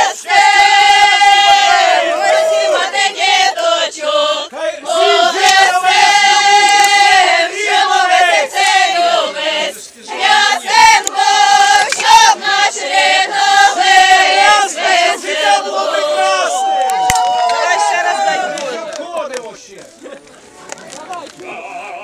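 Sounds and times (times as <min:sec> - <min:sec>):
group of people singing: 0:00.0 - 0:16.5.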